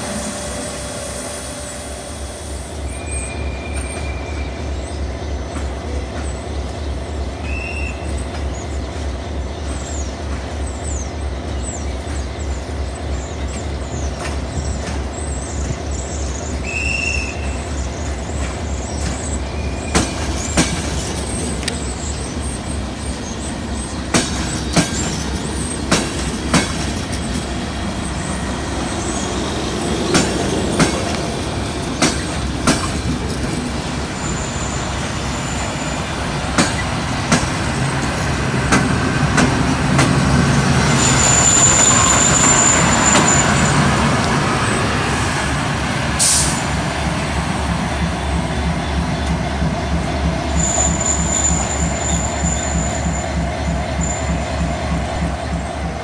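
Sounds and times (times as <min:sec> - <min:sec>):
high wheel squeal: 0:00.0 - 0:04.7, 0:33.9 - 0:36.2, 0:40.8 - 0:44.0, 0:50.5 - 0:54.5
electric locomotive humming: 0:00.0 - 0:56.0
train wheels clicking over rail joints: 0:05.3 - 0:16.6, 0:17.4 - 0:45.1.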